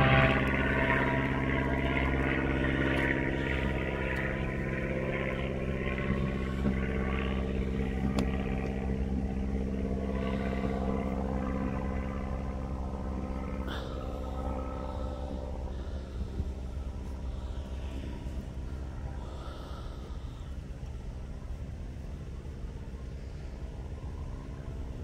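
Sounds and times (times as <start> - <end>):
diesel locomotive engine running: 0.0 - 25.0.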